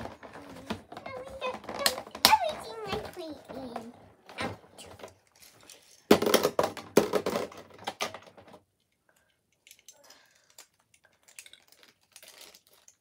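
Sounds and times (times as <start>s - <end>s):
hard plastic knocking and clattering: 0.0s - 5.1s, 6.1s - 8.6s.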